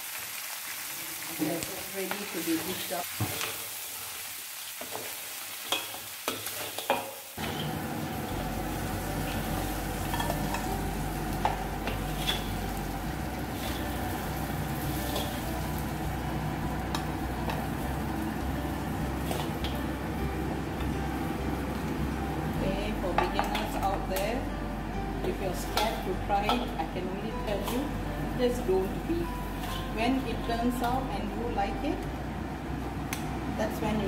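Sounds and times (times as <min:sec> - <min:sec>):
crab sizzling in a wok: 0:00.0 - 0:22.1, 0:28.6 - 0:30.0
metal spatula scraping a wok: 0:12.1 - 0:12.5, 0:29.6 - 0:29.9
steady low hum: 0:24.0 - 0:34.0.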